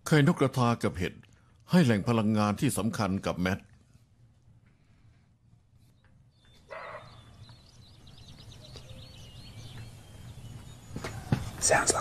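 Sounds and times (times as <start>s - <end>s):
small birds chirping: 0.4s - 12.0s
deer barking: 6.7s - 7.2s.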